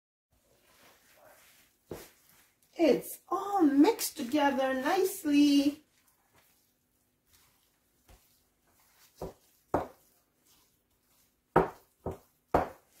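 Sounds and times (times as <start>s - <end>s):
wooden spoon knocking bowl: 9.2s - 10.1s, 11.5s - 13.0s.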